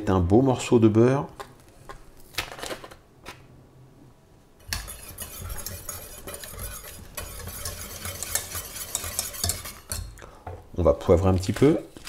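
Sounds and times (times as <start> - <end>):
whisk scraping metal pan: 4.6 - 10.2.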